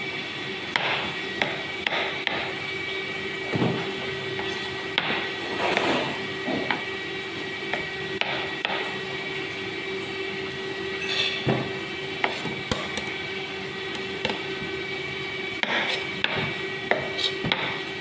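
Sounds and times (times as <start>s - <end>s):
ventilation fan hum: 0.0s - 18.0s.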